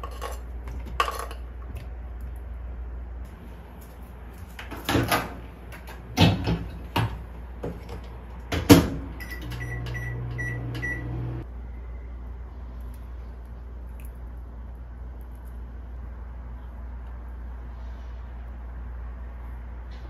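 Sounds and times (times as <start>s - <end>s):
appliance humming: 1.7s - 12.0s.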